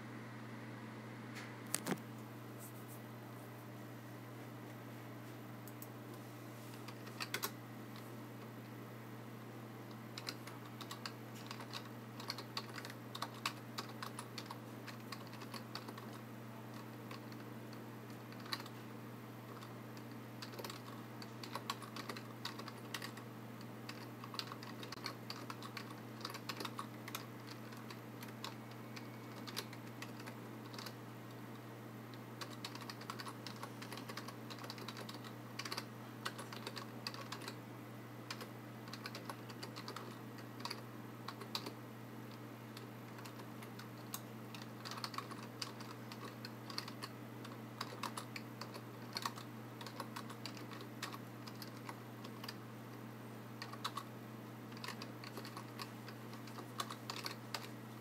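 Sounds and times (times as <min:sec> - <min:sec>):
typing on keyboard: 0:06.9 - 0:07.6, 0:09.9 - 0:18.8, 0:19.5 - 0:23.2, 0:23.9 - 0:31.0, 0:32.1 - 0:37.6, 0:38.3 - 0:41.8, 0:42.8 - 0:52.6, 0:53.6 - 0:54.1, 0:54.7 - 0:57.8.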